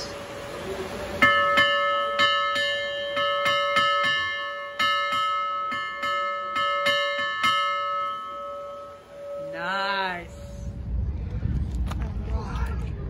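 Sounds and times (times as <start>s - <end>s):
metal hand bell ringing: 1.3s - 10.0s.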